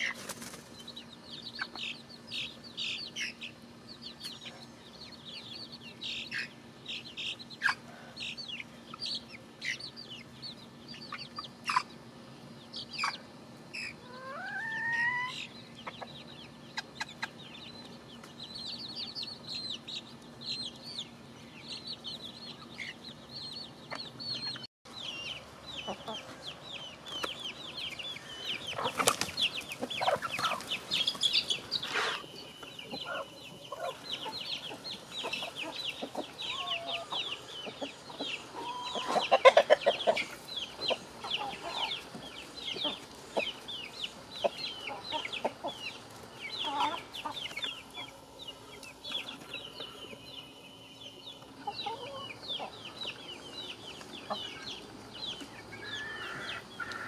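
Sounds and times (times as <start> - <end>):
chickens clucking: 0.0 - 57.0
high continuous chirping: 0.0 - 57.0
chicken squawking: 14.0 - 15.5, 35.3 - 37.3.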